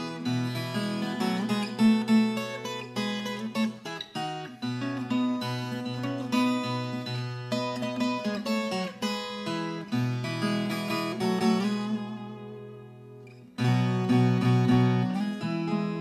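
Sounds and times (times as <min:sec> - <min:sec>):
acoustic guitar music: 0:00.0 - 0:16.0.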